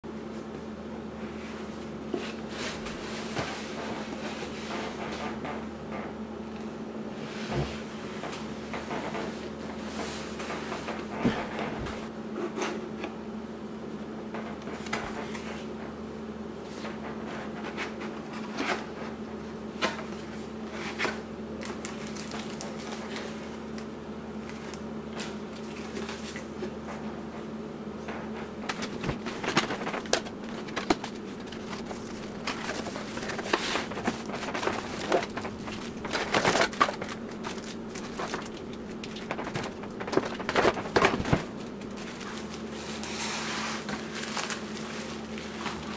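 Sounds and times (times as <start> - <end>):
steady low hum: 0.1 - 45.9
plastic bags rustling: 20.2 - 23.8, 28.6 - 45.9.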